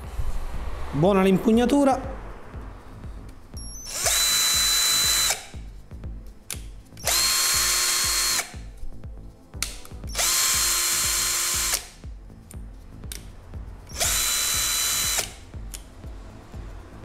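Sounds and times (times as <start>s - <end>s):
cordless drill motor whine: 3.6s - 5.5s, 7.0s - 8.6s, 10.1s - 11.8s, 13.9s - 15.4s.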